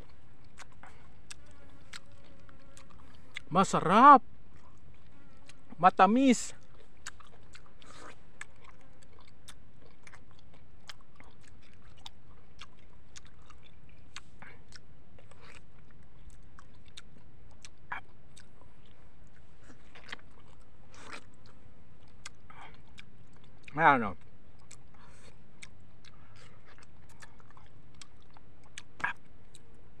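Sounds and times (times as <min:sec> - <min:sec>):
person chewing mango: 0:00.0 - 0:30.0
wet mouth clicks and smacks: 0:06.8 - 0:23.8, 0:24.6 - 0:29.7.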